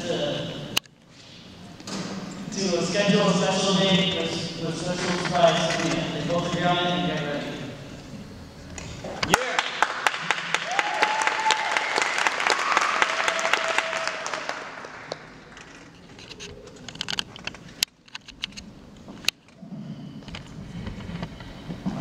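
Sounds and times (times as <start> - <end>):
audience applauding: 9.3 - 15.9.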